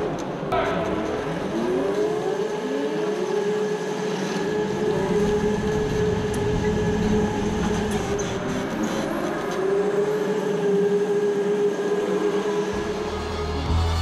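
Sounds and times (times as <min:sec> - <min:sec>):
engine speeding up: 0:09.0 - 0:14.0.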